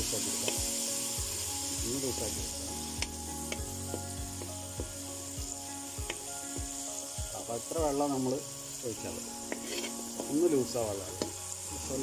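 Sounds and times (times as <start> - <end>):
sauce sizzling in a pan: 0.0 - 12.0
spoon scraping a pan: 9.4 - 10.3.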